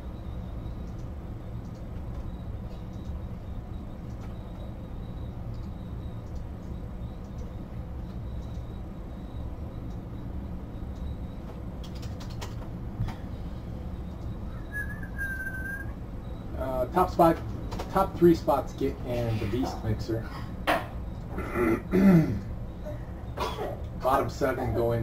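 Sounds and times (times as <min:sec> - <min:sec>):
faint room hum: 0:00.0 - 0:25.0
faint clicks: 0:00.8 - 0:03.2, 0:05.5 - 0:08.8, 0:09.8 - 0:10.1.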